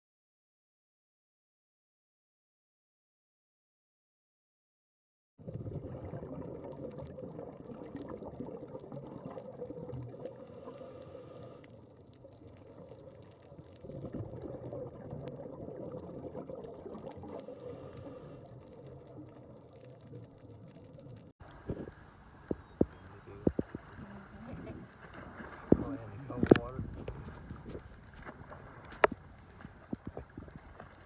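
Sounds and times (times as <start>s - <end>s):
muffled underwater water wash: 5.4s - 31.0s
faint clicks: 18.9s - 31.0s.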